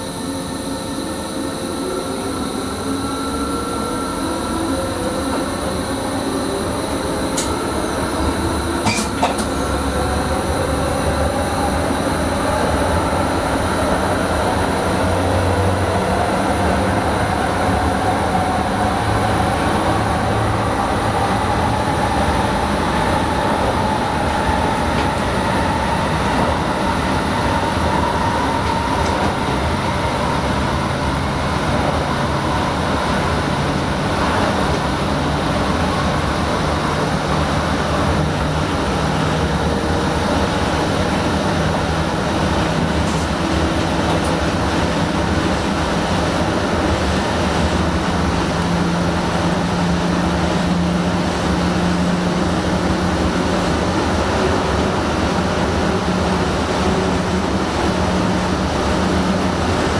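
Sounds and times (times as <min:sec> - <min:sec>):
electric motor whine: 0:00.0 - 0:14.1
train wheels rumbling on rails: 0:01.3 - 0:59.9.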